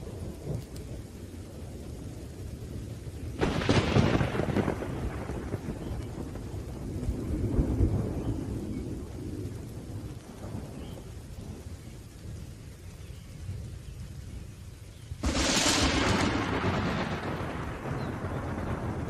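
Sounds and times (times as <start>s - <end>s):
steady rain: 0.0s - 19.0s
rolling thunder: 3.3s - 14.4s, 15.2s - 19.0s.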